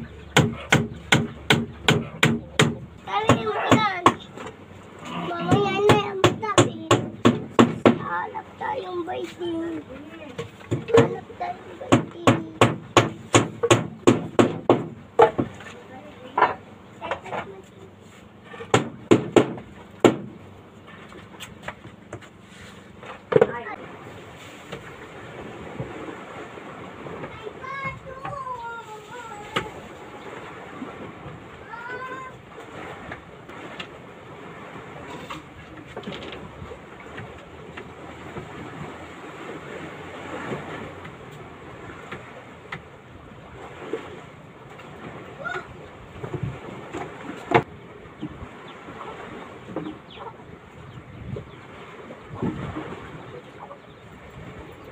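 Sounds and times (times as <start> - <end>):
hammer knocking on wooden hull: 0.3 - 4.2, 5.4 - 8.2, 10.4 - 11.3, 11.9 - 15.6, 18.6 - 20.4.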